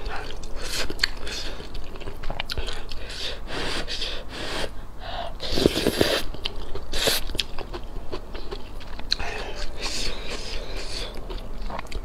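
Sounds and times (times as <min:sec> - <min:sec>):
chewing and wet mouth clicks: 0:00.1 - 0:03.2, 0:05.7 - 0:12.0
slurping noodles: 0:05.4 - 0:06.3.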